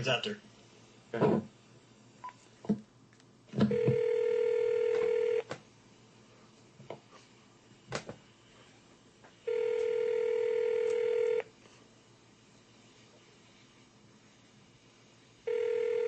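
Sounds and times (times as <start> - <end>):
telephone ringback tone: 3.7 - 5.4, 9.5 - 11.4, 15.5 - 16.0.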